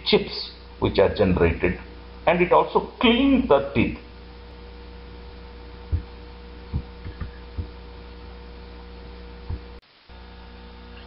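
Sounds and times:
electrical hum: 0.0s - 11.0s
low thumps: 5.8s - 7.9s, 9.4s - 9.8s.

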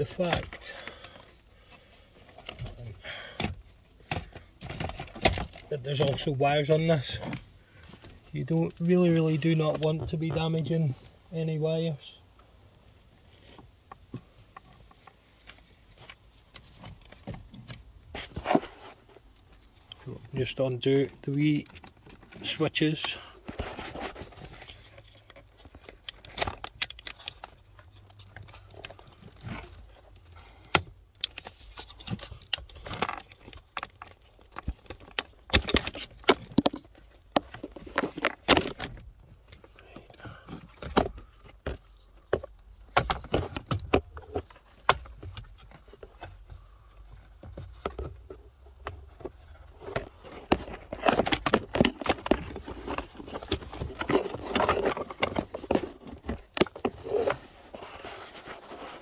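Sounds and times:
clicks and rattles of plastic trim: 21.1s - 57.4s.

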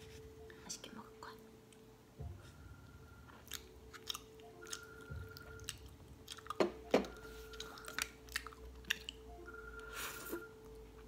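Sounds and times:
wet mouth eating sounds: 3.3s - 9.3s.

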